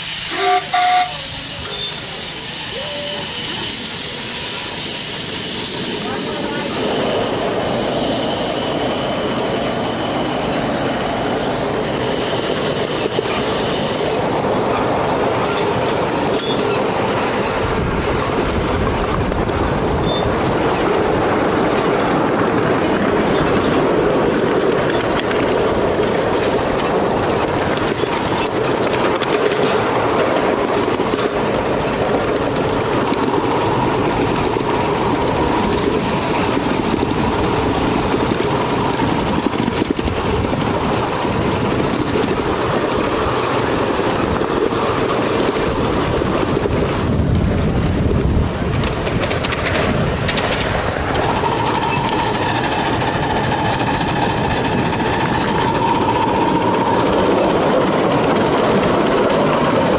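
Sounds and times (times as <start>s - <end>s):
steam hiss: 0.0s - 14.6s
train wheels clattering on rails: 0.0s - 59.9s.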